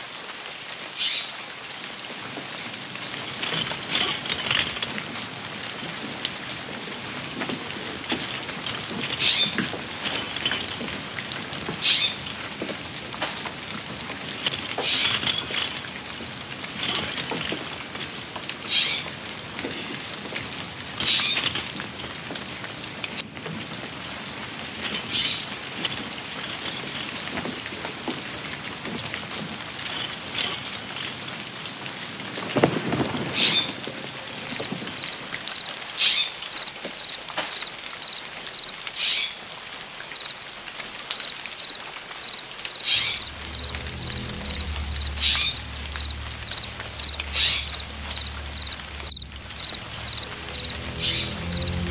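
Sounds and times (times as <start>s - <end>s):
bright call: 42.8s - 51.9s
low rumble: 42.8s - 51.9s.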